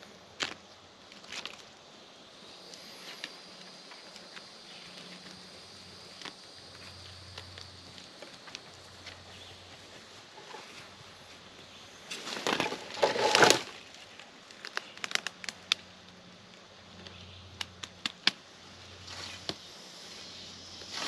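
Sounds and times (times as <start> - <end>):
twigs cracking: 0.4 - 1.7, 12.1 - 15.9
footsteps crunching through dry leaves: 6.1 - 14.1.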